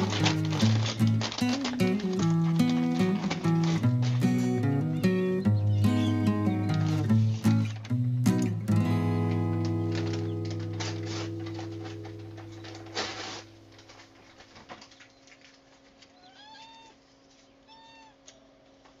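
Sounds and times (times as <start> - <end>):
strummed acoustic guitar chord: 0.0 - 14.0
kitten mewing: 16.2 - 17.0, 17.7 - 18.2.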